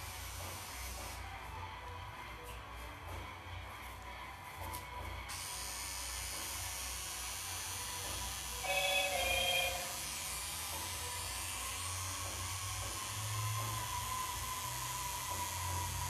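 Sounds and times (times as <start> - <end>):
tattoo machine humming: 0.0 - 1.8, 4.7 - 16.0
brief ringing tone: 8.6 - 10.0.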